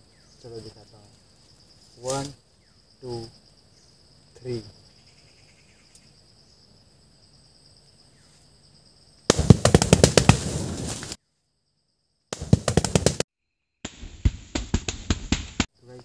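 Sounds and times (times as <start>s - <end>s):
balloons bursting with pops: 9.3s - 11.2s, 12.3s - 13.2s, 13.8s - 15.7s
rush of flame: 9.3s - 11.2s.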